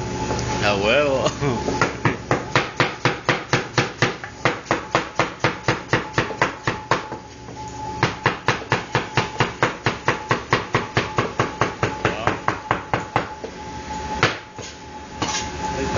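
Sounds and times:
knife chopping on cutting board: 1.8s - 7.2s.

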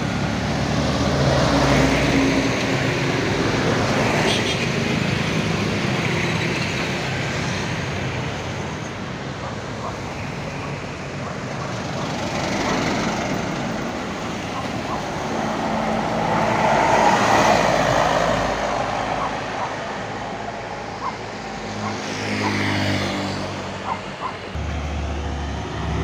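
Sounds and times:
cars and trucks passing: 0.0s - 26.0s
cargo truck driving past close: 9.5s - 26.0s.

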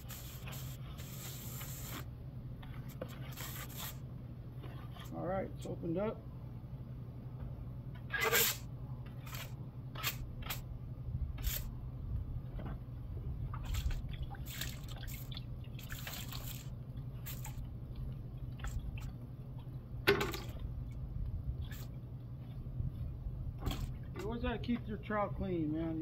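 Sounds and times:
steady low hum: 0.0s - 26.0s
trowel scraping: 2.7s - 4.0s, 8.1s - 10.6s.

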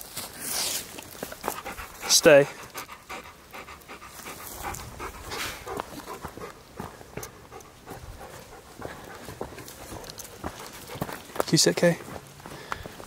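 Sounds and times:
large dog panting: 1.3s - 11.3s.

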